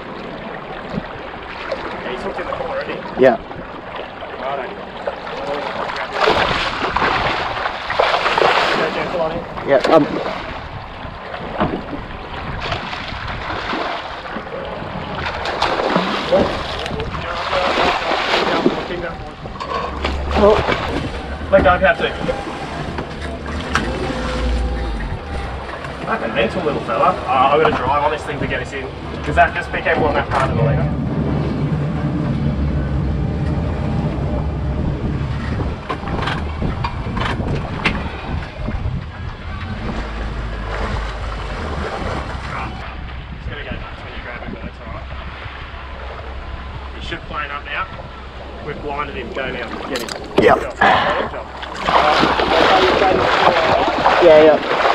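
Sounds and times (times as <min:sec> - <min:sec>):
outboard motor running: 0:00.0 - 0:54.9
water rushing: 0:00.0 - 0:54.9
wind: 0:00.0 - 0:54.9
fish splashing at surface: 0:05.0 - 0:09.1, 0:49.7 - 0:54.9.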